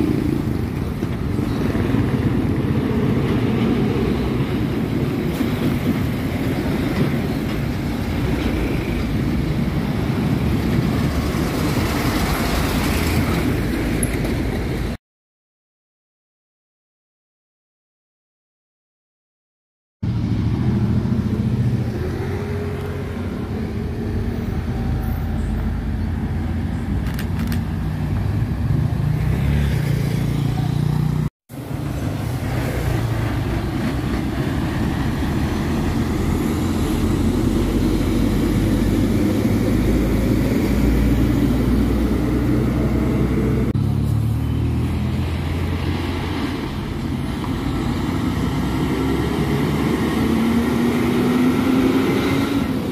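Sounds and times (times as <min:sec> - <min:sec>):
heavy diesel trucks in traffic: 0:00.0 - 0:15.0, 0:20.0 - 0:52.9
dump truck diesel engine: 0:30.6 - 0:52.9.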